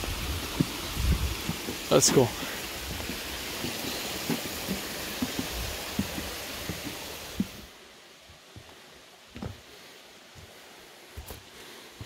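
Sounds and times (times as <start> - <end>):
stream rushing: 0.0 - 12.0
footsteps walking: 0.3 - 7.7, 9.4 - 9.6, 11.2 - 11.5.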